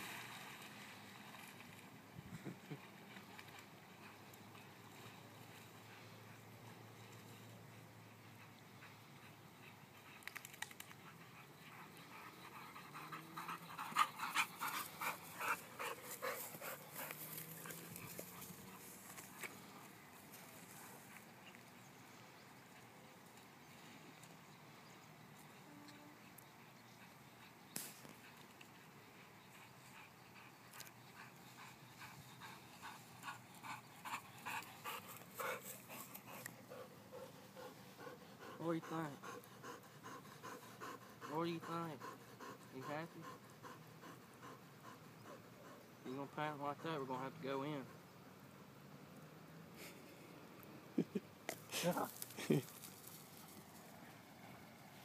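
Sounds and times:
dog panting: 8.0s - 19.9s, 26.7s - 48.0s.

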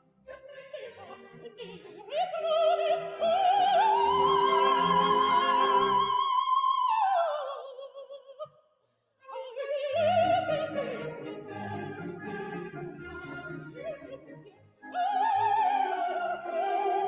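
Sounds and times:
soprano singing: 0.0s - 8.4s, 9.2s - 17.0s
orchestra playing: 2.6s - 6.2s, 10.2s - 15.0s.

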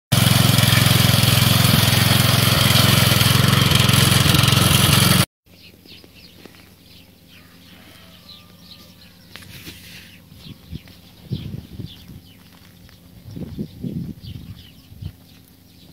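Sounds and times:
small petrol engine running: 0.1s - 5.3s.

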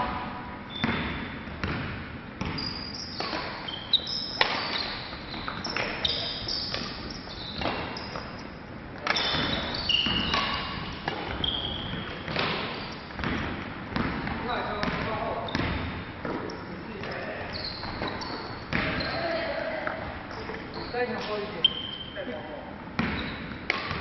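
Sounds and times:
sneakers squeaking on floor: 0.7s - 24.0s
badminton racket hits: 9.0s - 13.5s.

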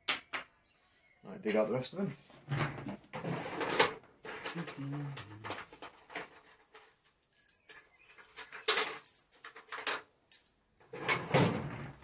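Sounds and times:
steel pieces clinking: 7.3s - 7.8s, 8.4s - 10.6s.

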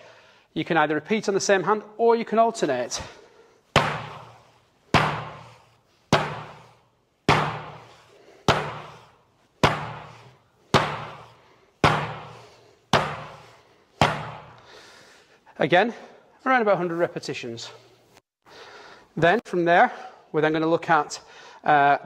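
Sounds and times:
hand slapping bean bag: 3.7s - 14.8s.

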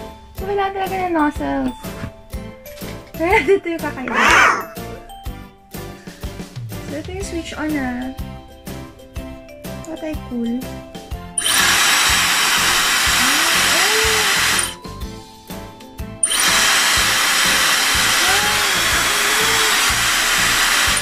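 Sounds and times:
hair dryer blowing with whine: 11.4s - 14.8s, 16.2s - 21.0s.

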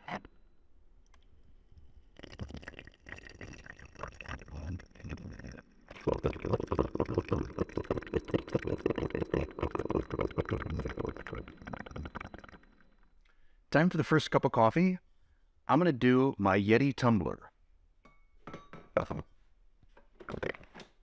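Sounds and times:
coffee maker sputtering and gurgling: 2.2s - 12.8s.

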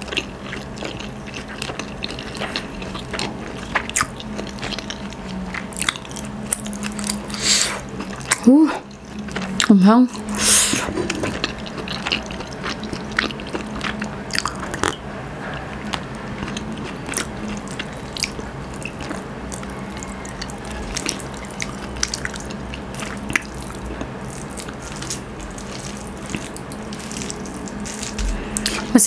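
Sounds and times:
chewing: 0.0s - 29.0s
faint low hum: 0.0s - 29.0s
fingers mixing sticky rice: 17.1s - 29.0s.

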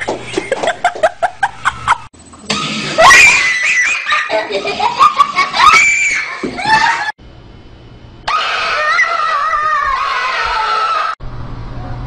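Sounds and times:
frightened screaming: 3.0s - 4.4s, 5.4s - 7.1s, 8.3s - 11.2s.

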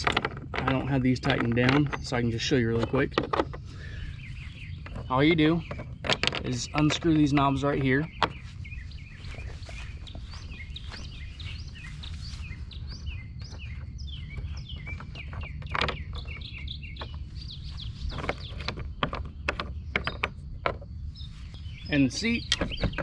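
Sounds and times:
plastic knobs clicking: 0.0s - 3.7s, 4.8s - 8.4s
small birds chirping: 0.0s - 23.0s.

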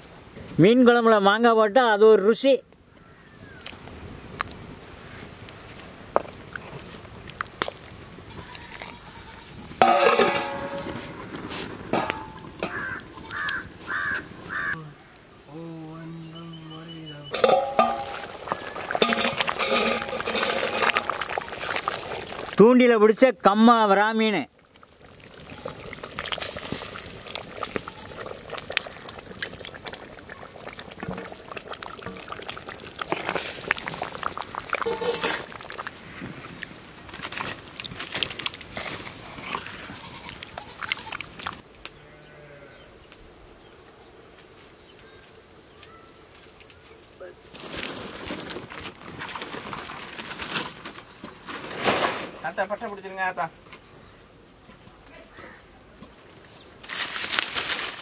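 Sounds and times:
curry simmering hiss: 3.0s - 41.6s
farm animal calls: 12.6s - 15.1s.

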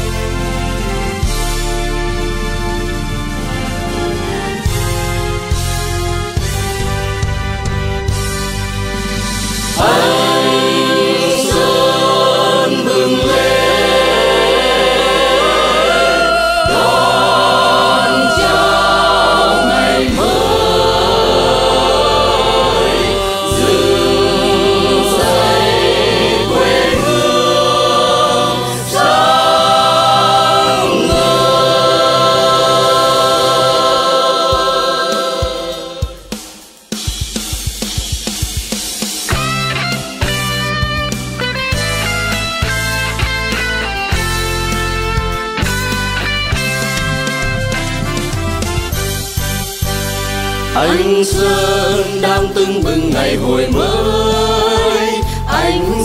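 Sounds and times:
instrumental backing with bass: 0.0s - 56.0s
choir singing held notes: 9.7s - 36.8s, 50.6s - 56.0s.

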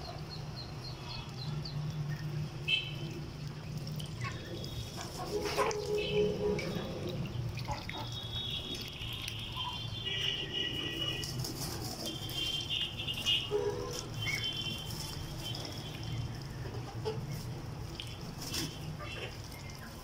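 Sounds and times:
ducklings and chicks peeping: 13.9s - 20.0s.

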